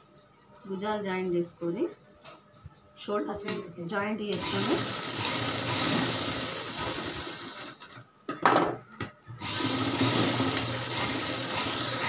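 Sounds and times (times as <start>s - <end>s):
sewing machine stitching: 4.4s - 7.8s, 9.4s - 12.0s.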